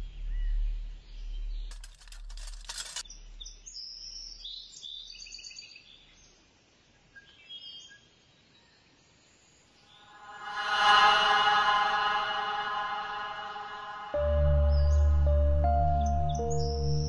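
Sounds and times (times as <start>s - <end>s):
deep bass note: 10.2s - 17.0s.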